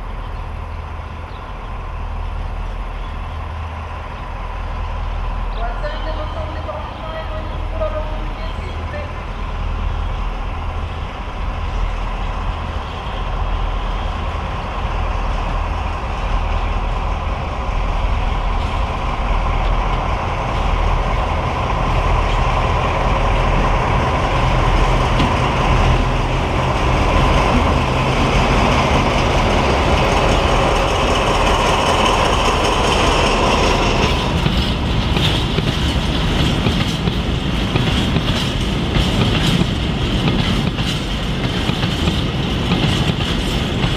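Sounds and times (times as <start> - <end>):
diesel locomotive engines droning: 0.0 - 43.9
train wheels clattering over rail joints: 24.4 - 43.9.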